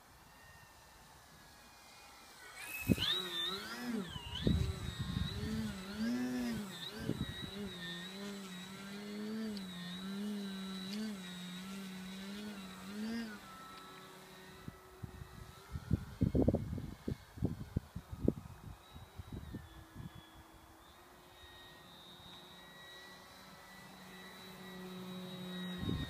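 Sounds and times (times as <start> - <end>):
model plane electric motor and propeller: 0.0 - 26.0
wind rumble on microphone: 4.2 - 7.7, 14.6 - 20.2, 25.8 - 26.0.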